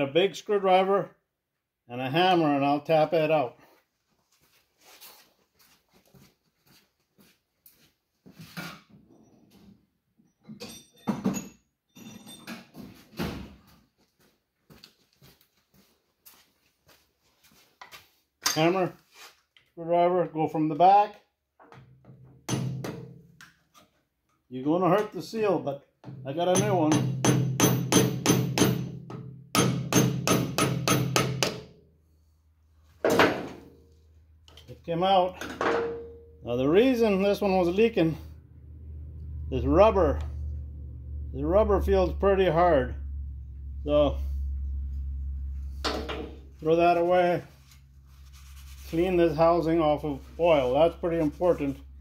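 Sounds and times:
metal tools clattering: 10.4 - 12.8
faint metallic ringing: 35.7 - 36.6.

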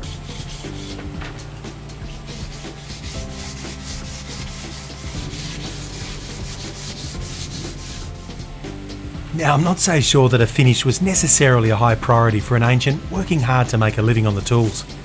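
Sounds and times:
hand-sanding wood: 0.0 - 11.9.

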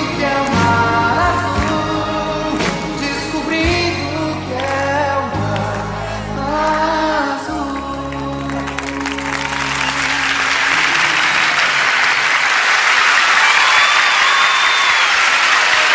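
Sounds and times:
audience applause: 7.6 - 15.9.

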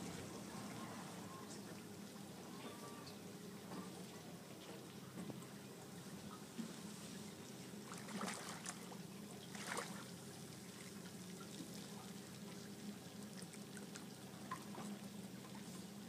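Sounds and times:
water splashing and trickling: 7.0 - 16.0.

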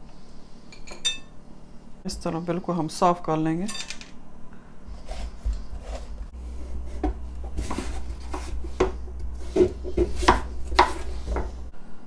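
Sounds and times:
knife cutting pumpkin on board: 5.0 - 11.6
spoon scraping pumpkin pulp: 5.0 - 11.6.

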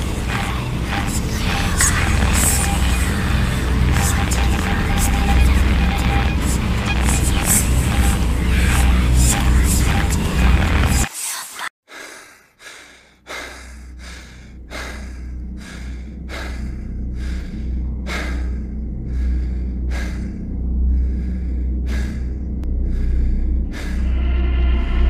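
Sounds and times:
low drone: 0.0 - 11.1, 13.0 - 25.0
fast heavy breathing: 10.8 - 24.2.

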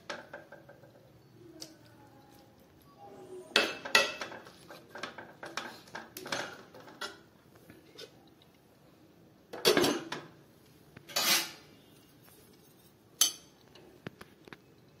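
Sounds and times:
metal kitchenware clanking: 3.5 - 7.3, 9.6 - 10.3, 11.1 - 13.6.

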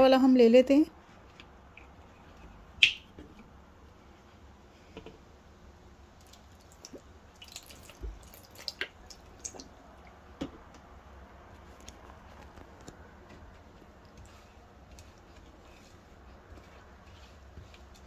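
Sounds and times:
liquid dripping and splatting: 2.8 - 3.1, 6.2 - 10.2.

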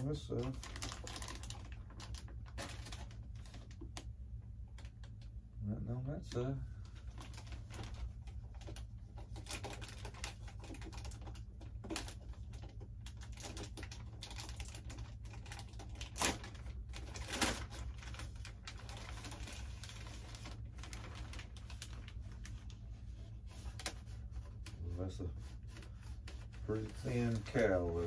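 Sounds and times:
plastic bag crinkling: 0.0 - 4.1, 6.9 - 24.8.

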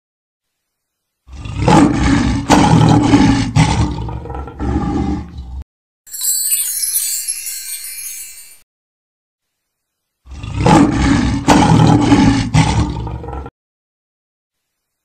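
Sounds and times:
monster roar: 1.3 - 5.6, 10.3 - 13.5
twinkling chime: 6.1 - 8.7.

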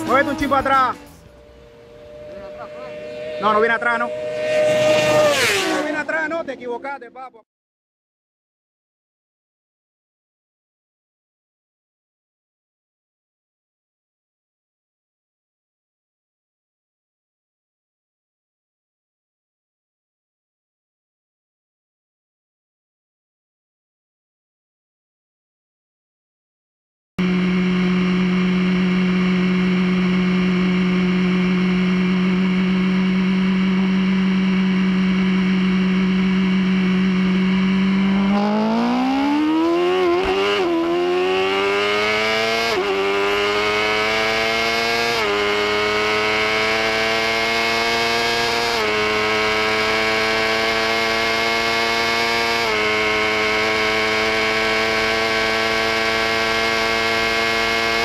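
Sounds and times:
motorcycle engine revving through gears: 0.0 - 6.7, 27.2 - 58.0.

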